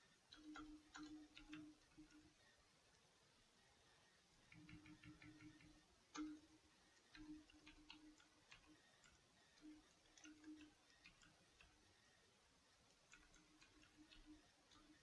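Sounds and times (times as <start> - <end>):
keyboard typing: 0.3 - 2.3, 4.5 - 6.5, 7.1 - 11.8, 13.1 - 15.0.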